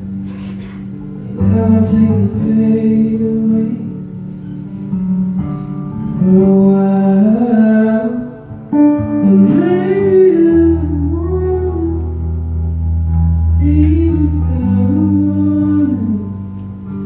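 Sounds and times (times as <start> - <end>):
electric guitar: 0.0 - 17.0
man singing: 1.2 - 4.1, 6.0 - 12.3, 13.5 - 16.6.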